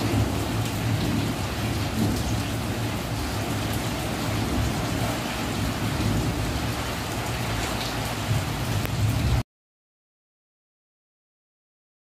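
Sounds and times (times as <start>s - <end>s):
heavy rain on metal roofs: 0.0s - 9.4s.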